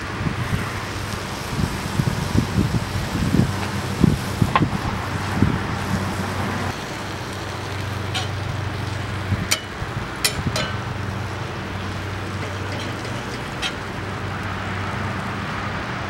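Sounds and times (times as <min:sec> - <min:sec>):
beef sizzling on a skillet: 0:00.4 - 0:15.7.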